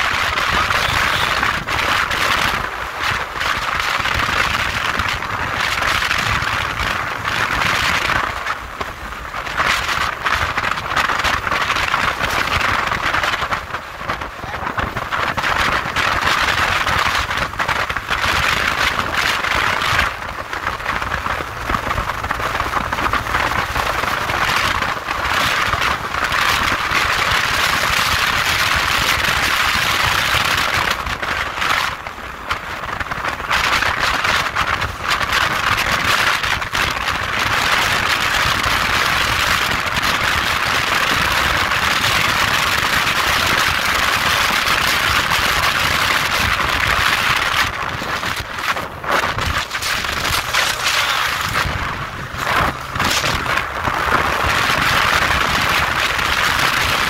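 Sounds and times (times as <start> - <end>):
motorcycle road noise: 0.0 - 57.0
wind rushing: 44.1 - 57.0.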